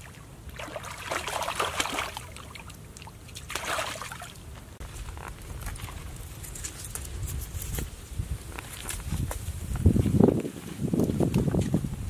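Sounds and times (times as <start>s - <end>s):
fish splashing in water: 0.0s - 4.4s.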